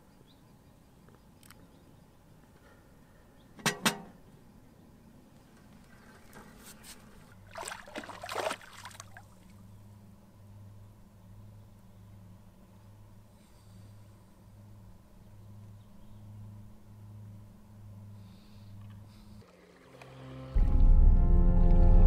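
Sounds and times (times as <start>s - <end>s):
low steady hum: 7.0s - 22.0s.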